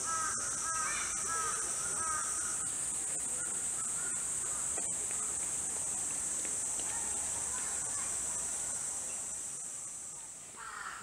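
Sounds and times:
crow cawing: 0.0 - 2.6, 3.8 - 4.7, 10.6 - 11.0
insects chirring: 0.0 - 11.0.

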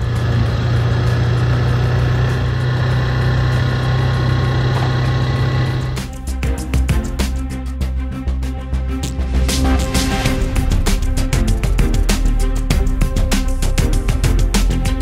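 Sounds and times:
engine running steadily: 0.0 - 7.7
music: 0.0 - 15.0.

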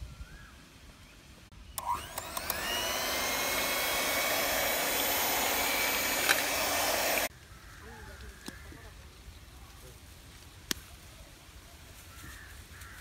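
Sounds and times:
electric hand mixer whining: 1.8 - 7.3.

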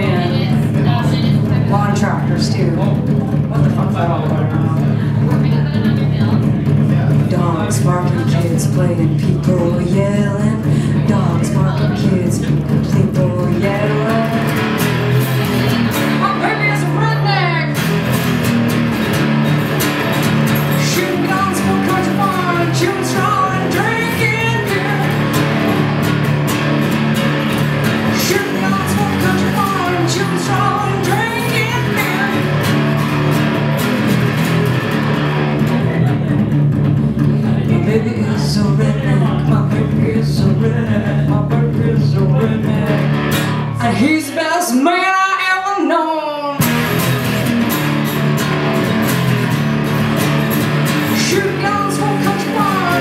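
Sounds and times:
acoustic guitar strumming: 0.0 - 44.4, 46.5 - 53.0
woman singing: 7.3 - 14.6, 16.2 - 17.8, 20.7 - 25.4, 28.1 - 32.7, 37.7 - 43.1, 43.8 - 46.6, 51.1 - 53.0.

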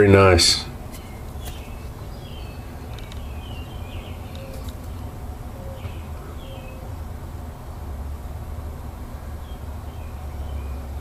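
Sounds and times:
birds chirping: 0.0 - 8.0, 8.8 - 11.0.

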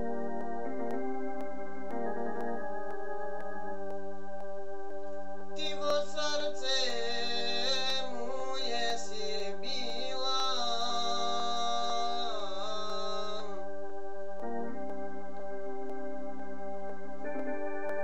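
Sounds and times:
organ-like electronic keyboard: 0.0 - 18.0
man singing: 5.6 - 13.7.

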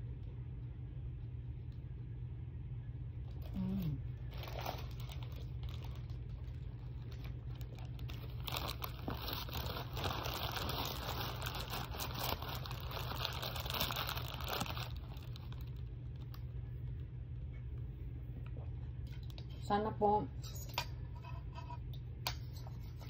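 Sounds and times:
steady low hum: 0.0 - 23.0
paper wrapper crinkling: 3.3 - 16.5.

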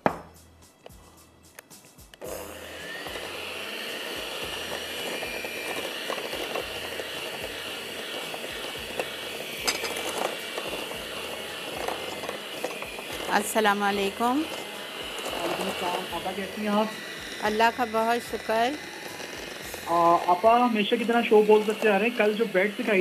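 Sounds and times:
electric mixer whirring: 2.2 - 23.0.

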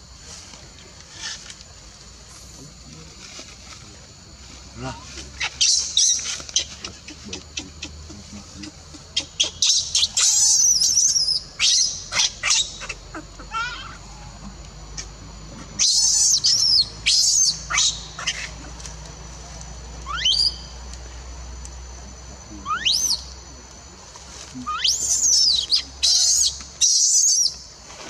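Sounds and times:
baby monkey screaming: 5.2 - 14.0, 15.8 - 18.7, 20.0 - 20.6, 22.6 - 23.2, 24.6 - 27.5.

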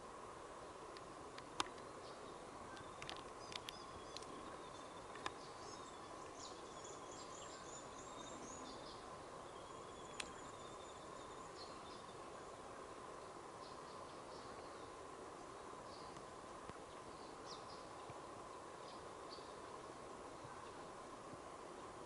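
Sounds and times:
steady hiss: 0.0 - 22.0
bird chirping: 1.9 - 12.6.

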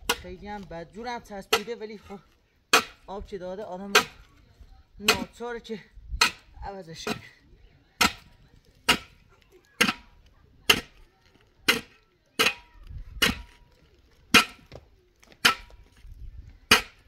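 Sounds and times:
hand tool striking hard material: 0.0 - 0.7, 1.4 - 3.2, 3.8 - 4.3, 5.0 - 5.4, 6.2 - 7.3, 8.0 - 11.0, 11.6 - 13.6, 14.3 - 16.0, 16.7 - 17.0.

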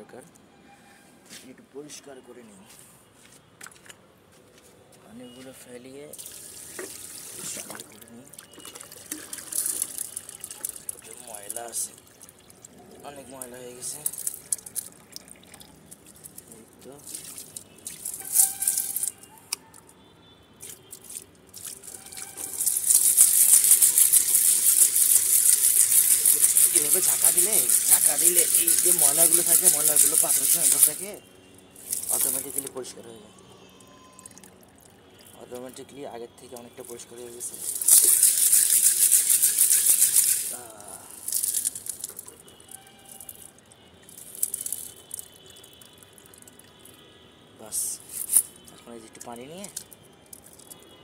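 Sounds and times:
water sloshing and splashing: 3.6 - 4.0, 6.2 - 19.9, 20.6 - 32.9, 37.4 - 47.0
pebbles rattling in glass bowl: 9.1 - 12.0, 13.1 - 16.5, 17.1 - 19.2, 21.5 - 31.2, 31.8 - 32.8, 37.4 - 46.6.

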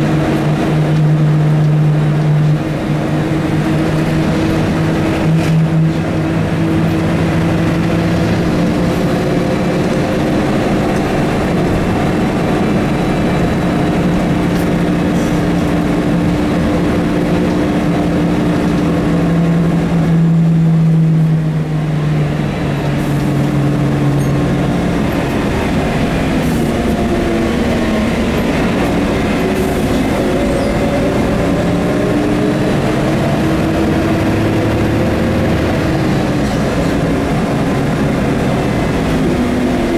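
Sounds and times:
bus engine droning: 0.0 - 39.9.

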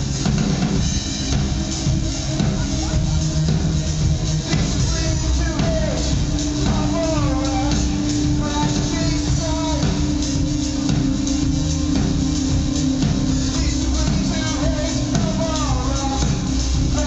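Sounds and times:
keyboard: 0.0 - 17.0
man singing: 4.4 - 10.2, 13.3 - 17.0.

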